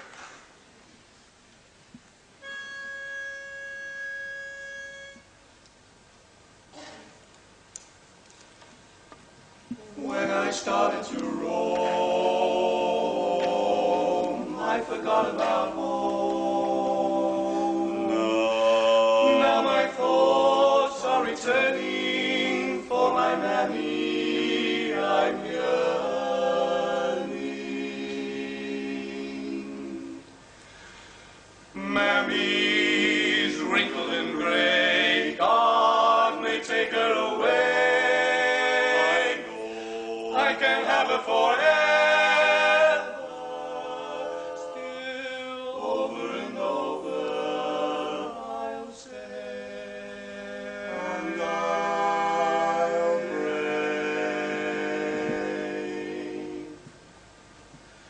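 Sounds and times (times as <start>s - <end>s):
male vocal quartet singing: 9.8s - 30.4s, 31.7s - 56.9s.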